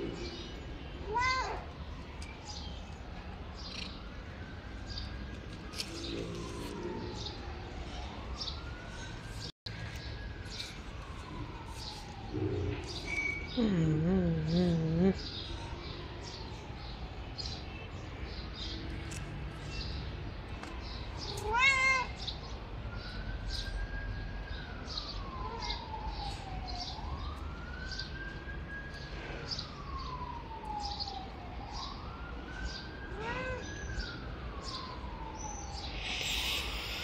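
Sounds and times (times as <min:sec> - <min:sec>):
siren wailing: 0:01.6 - 0:17.4, 0:22.9 - 0:37.0
cat meowing: 0:21.4 - 0:22.2, 0:33.2 - 0:33.8.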